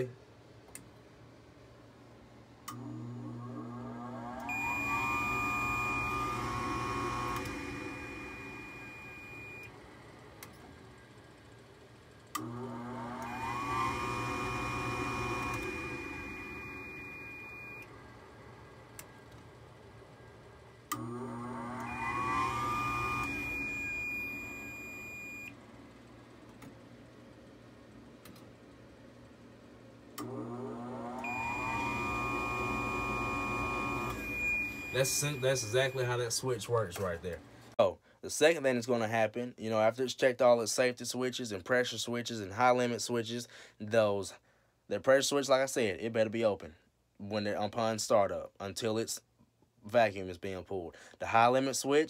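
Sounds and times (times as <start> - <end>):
blower motor whining: 2.7 - 9.7, 12.3 - 18.3, 20.9 - 25.5, 30.2 - 36.4
continuity tester beep: 4.5 - 9.7, 14.6 - 17.9, 21.9 - 25.5, 31.2 - 36.2.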